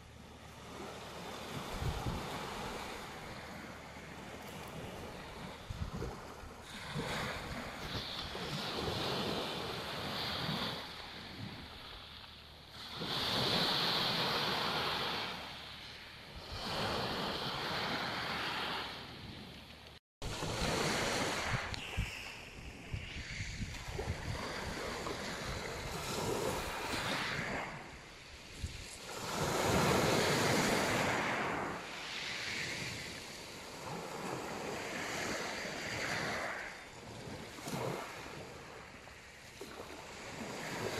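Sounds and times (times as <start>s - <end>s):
waves washing up pebble beach: 0.5s - 12.1s, 20.2s - 40.9s.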